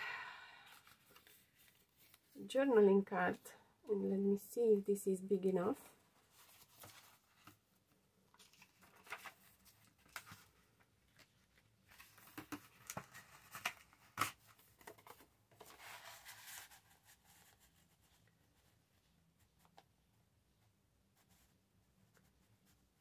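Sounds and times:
paper rustling: 0:00.7 - 0:02.4, 0:06.2 - 0:07.6, 0:08.3 - 0:17.8.

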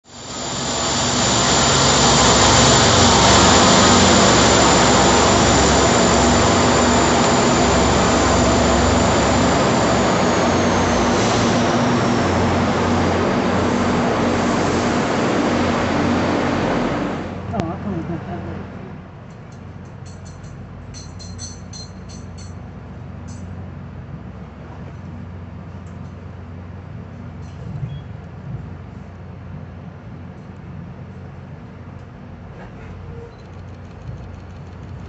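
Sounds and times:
high whine sliding down: 0:00.0 - 0:19.1
diesel locomotive running: 0:00.0 - 0:35.0.

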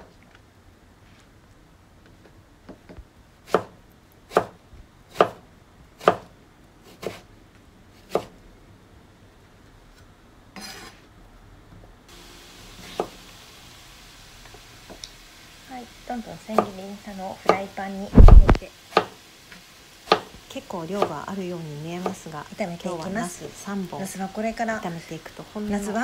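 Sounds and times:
faint steady hiss: 0:00.0 - 0:26.0
knife slicing on cutting board: 0:18.2 - 0:18.6.

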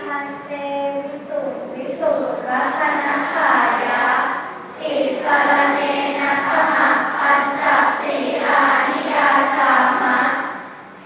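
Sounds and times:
children chanting in unison: 0:01.9 - 0:10.8.

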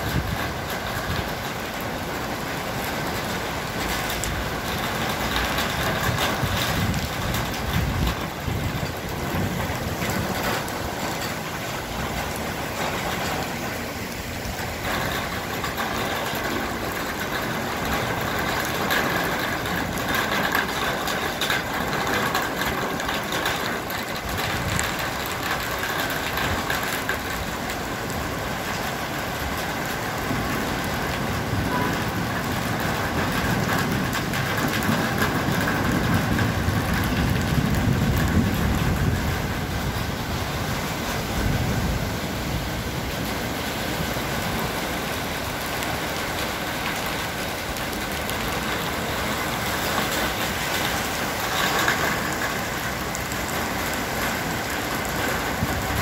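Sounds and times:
heavy rain on street and cars: 0:00.0 - 0:56.0.

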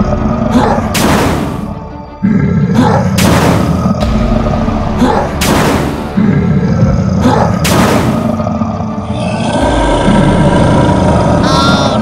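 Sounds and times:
boom and whoosh sound effects: 0:03.2 - 0:06.2, 0:07.6 - 0:08.3.

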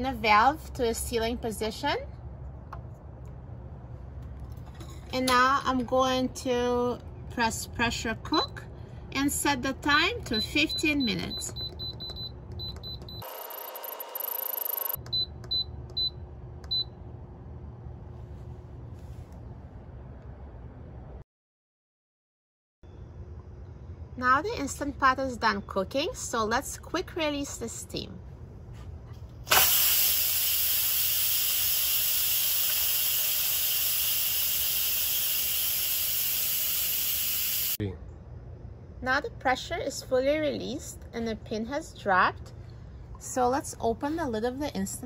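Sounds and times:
hiss: 0:29.5 - 0:37.8.

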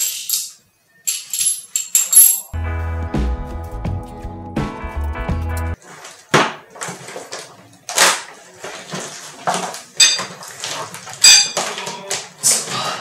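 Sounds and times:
sharp metallic clinks: 0:00.0 - 0:02.6.

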